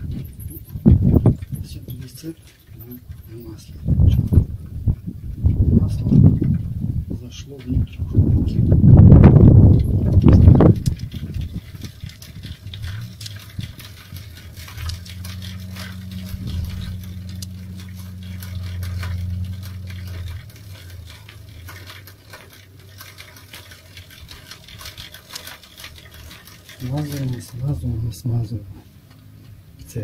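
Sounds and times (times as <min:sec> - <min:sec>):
low steady hum: 0:00.0 - 0:30.0
bicycle chain clicking: 0:09.3 - 0:28.3.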